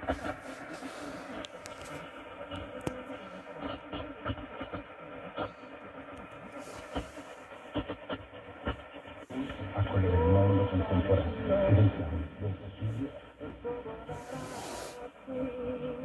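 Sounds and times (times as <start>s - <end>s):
crackles and clicks: 0.0s - 9.7s
radio static hiss: 0.0s - 16.0s
weak am radio signal: 0.0s - 16.0s.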